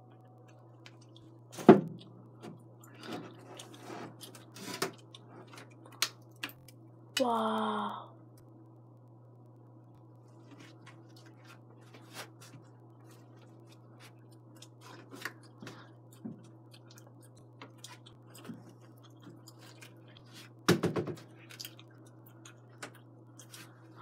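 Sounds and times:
low hum: 0.0s - 24.0s.

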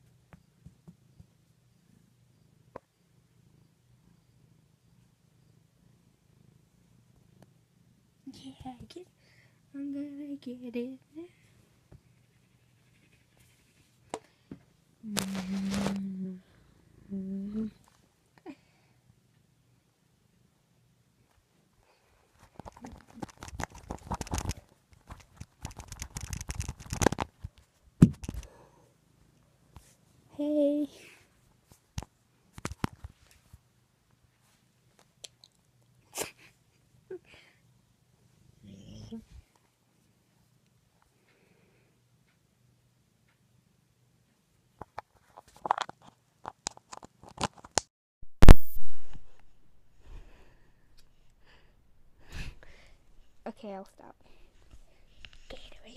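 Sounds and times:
fabric rubbing on microphone: 15.1s - 16.0s.

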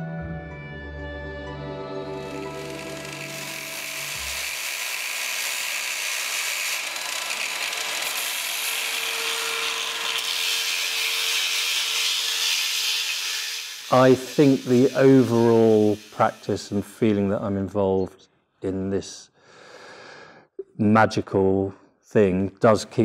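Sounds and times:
soft music: 0.0s - 4.5s
motor whine: 2.0s - 11.0s
angle grinder cutting stone: 2.0s - 17.3s.

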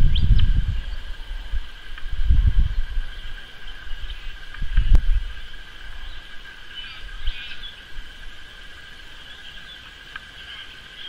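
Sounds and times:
high-pitched insect chorus: 0.0s - 11.0s
scratchy bird calls: 3.0s - 11.0s.

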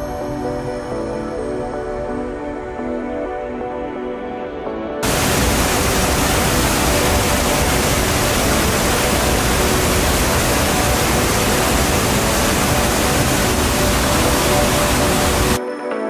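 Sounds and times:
faint music: 0.0s - 15.8s
waterfall rushing: 5.0s - 15.6s.

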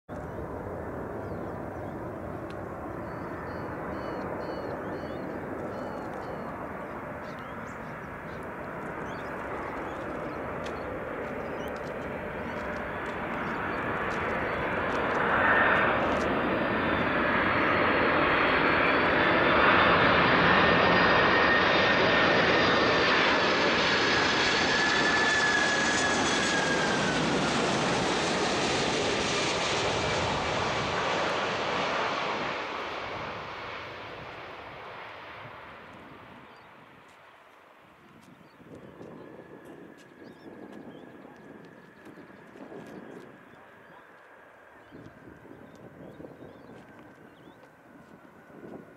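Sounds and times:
jet engine roar: 0.1s - 48.9s
high jet whine: 0.6s - 37.0s.

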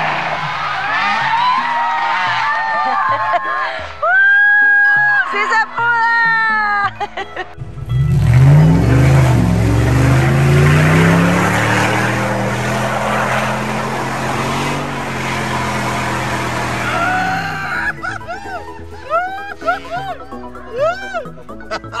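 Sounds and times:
engine revving under load: 0.0s - 1.5s, 7.6s - 18.3s
tyres churning through mud: 0.0s - 4.0s, 7.6s - 20.5s.

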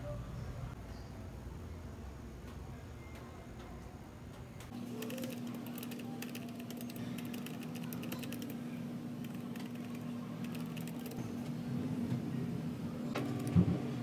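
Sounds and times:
steady low hum: 3.9s - 14.0s
keyboard typing clicks: 5.0s - 8.6s, 9.2s - 11.2s, 13.2s - 13.6s.

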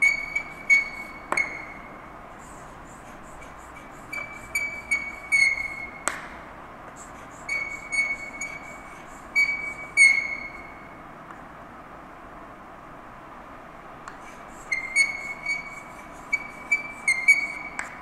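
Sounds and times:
chalk tapping: 0.0s - 1.8s, 2.4s - 6.3s, 14.1s - 18.0s
chalk squeaking on blackboard: 0.0s - 6.0s, 7.0s - 10.8s, 14.3s - 18.0s.

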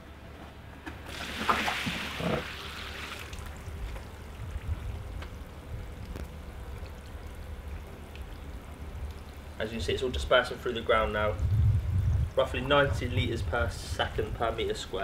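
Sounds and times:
water gushing and splashing: 1.0s - 9.6s.

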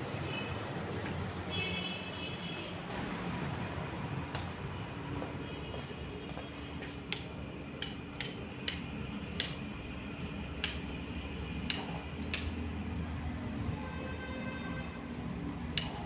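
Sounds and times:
sharp irregular clicks: 7.1s - 9.7s, 10.6s - 11.0s, 11.6s - 12.6s, 15.6s - 16.0s.

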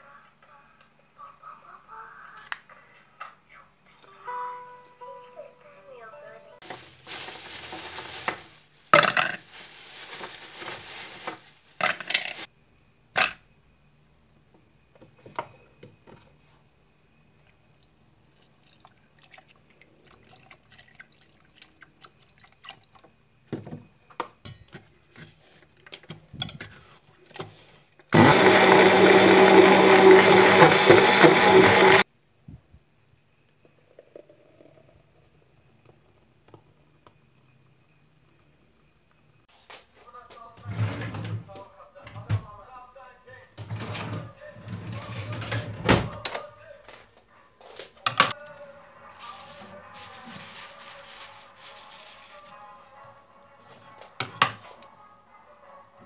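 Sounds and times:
electric blender running: 28.1s - 32.0s.

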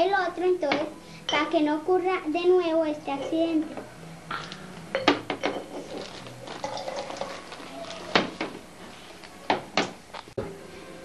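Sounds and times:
glass clinks and knocks: 4.3s - 7.2s.

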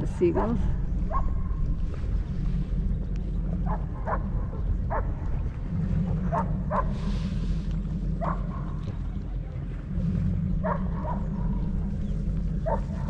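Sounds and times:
steady low rumble: 0.0s - 13.0s
dog barking: 0.4s - 1.4s, 3.7s - 5.2s, 6.3s - 7.0s, 8.2s - 8.7s, 10.6s - 11.3s, 12.6s - 13.0s.

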